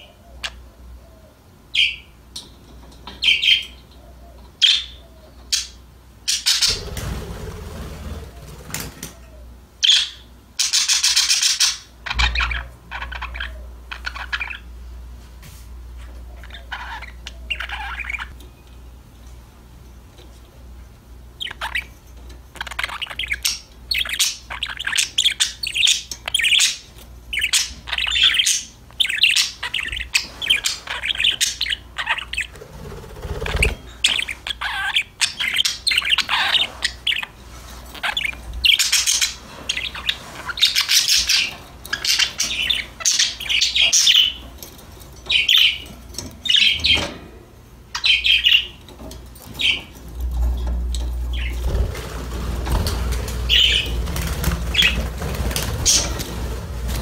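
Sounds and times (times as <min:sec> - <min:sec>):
budgerigars chirping: 0:01.7 - 0:02.1, 0:04.6 - 0:07.2, 0:09.8 - 0:14.7, 0:16.4 - 0:18.4, 0:21.4 - 0:21.9, 0:22.5 - 0:32.6, 0:33.3 - 0:44.5, 0:45.2 - 0:47.1, 0:47.9 - 0:48.8, 0:49.5 - 0:50.0, 0:51.3 - 0:51.9, 0:53.4 - 0:56.3.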